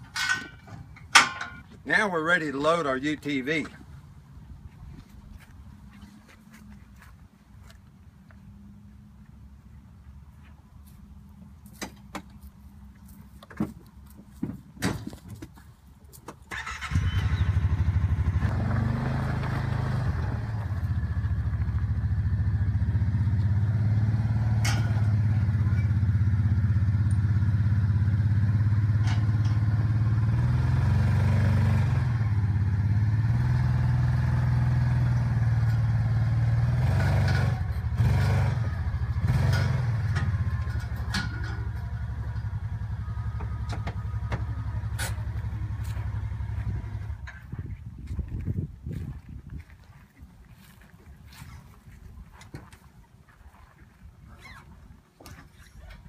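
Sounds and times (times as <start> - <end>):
metal knocks and clanks: 0.0 - 1.7, 24.5 - 26.0, 28.9 - 30.0, 39.2 - 47.5
utility vehicle engine under load: 16.4 - 48.5.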